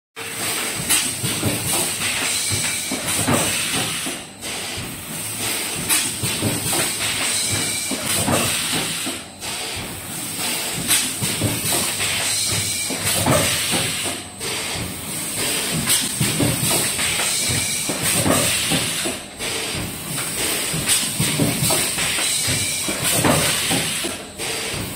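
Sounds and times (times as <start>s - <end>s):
packing machine clatter: 0.2s - 24.9s.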